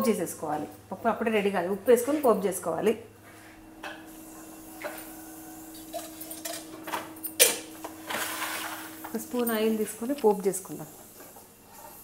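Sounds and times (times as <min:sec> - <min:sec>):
utensils clinking: 0:05.8 - 0:10.4.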